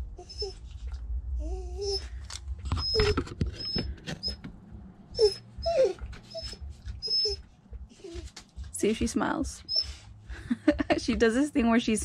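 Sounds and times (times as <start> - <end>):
dog whining: 0.0 - 4.5, 5.1 - 8.6, 9.6 - 10.1.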